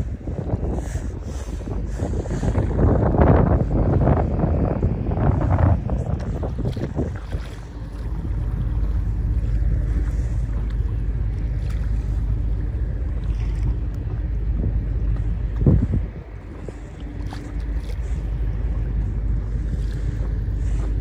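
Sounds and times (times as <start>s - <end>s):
water sounds: 0.0s - 21.0s
wind buffeting microphone: 0.0s - 21.0s
small splashes: 6.2s - 14.2s, 16.6s - 18.8s.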